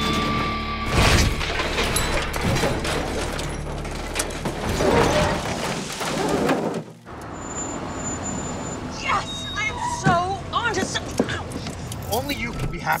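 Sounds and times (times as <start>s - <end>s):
debris clattering: 0.0s - 7.1s
vehicle crash impact: 0.0s - 7.1s
metal crunching and scraping: 0.0s - 7.4s.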